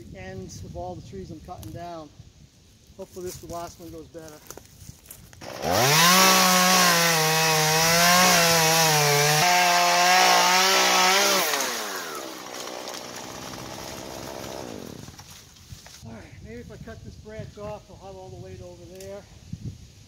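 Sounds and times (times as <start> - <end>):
chainsaw cutting tree: 5.4 - 15.3.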